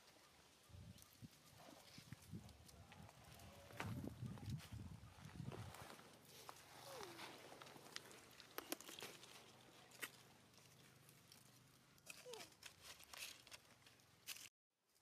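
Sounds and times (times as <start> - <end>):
dry leaves and wrapper crinkling: 5.4 - 15.0.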